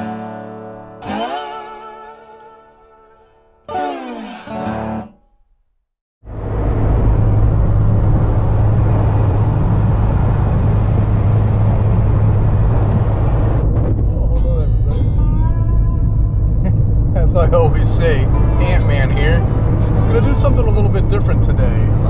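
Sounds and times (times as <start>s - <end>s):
plucked-string music: 0.0s - 5.6s, 14.0s - 22.0s
car road and engine noise: 6.2s - 22.0s.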